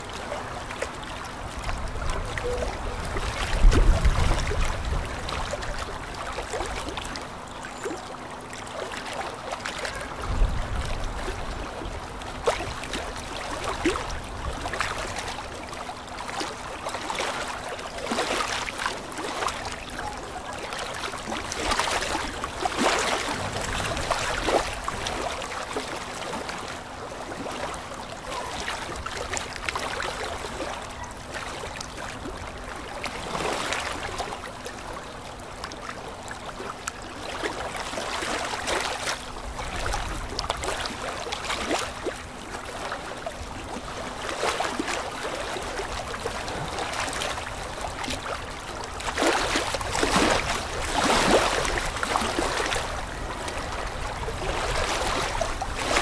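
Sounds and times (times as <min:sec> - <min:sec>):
aquarium water bubbling: 0:00.0 - 0:09.4, 0:10.9 - 0:28.2
low hum: 0:22.5 - 0:25.6.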